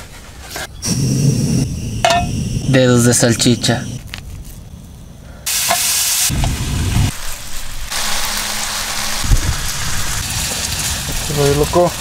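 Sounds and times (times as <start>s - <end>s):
sausages sizzling in a frying pan: 5.5s - 12.0s.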